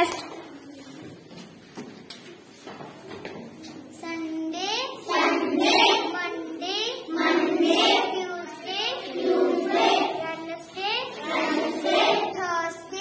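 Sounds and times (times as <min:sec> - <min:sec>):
girl singing a chant: 0:04.0 - 0:13.0.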